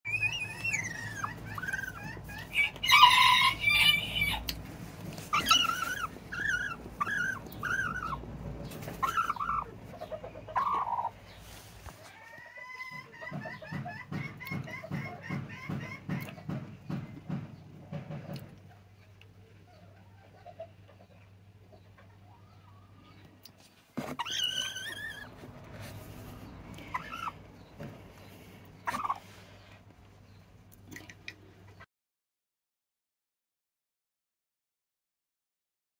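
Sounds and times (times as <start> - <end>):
hen making complaining calls: 0.1 - 4.5, 5.2 - 16.2, 24.2 - 29.7
hen grumpy calls: 5.3 - 11.2, 26.4 - 27.5, 28.8 - 29.6.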